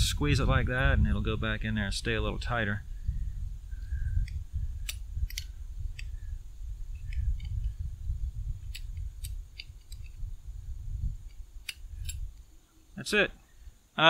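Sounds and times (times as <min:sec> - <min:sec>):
steady low rumble: 0:00.0 - 0:12.7.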